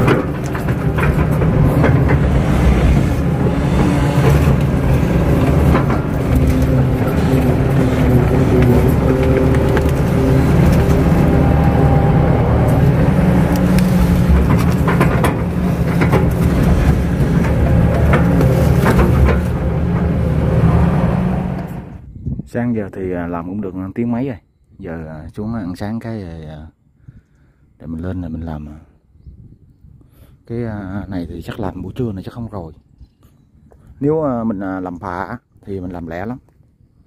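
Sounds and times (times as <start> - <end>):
machine knocks: 0.0 - 21.2
excavator diesel engine running: 0.0 - 22.0.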